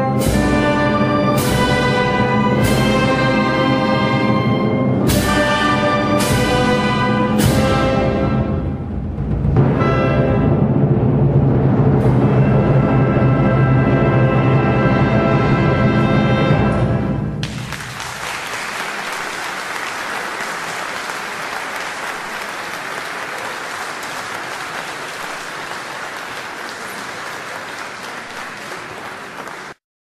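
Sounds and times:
orchestral music: 0.0s - 29.6s
crowd applauding: 17.4s - 29.8s.

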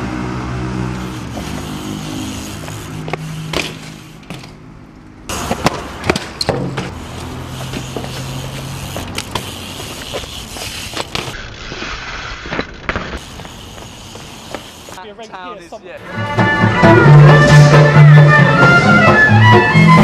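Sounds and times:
bike tyres rolling on concrete: 0.0s - 15.2s.

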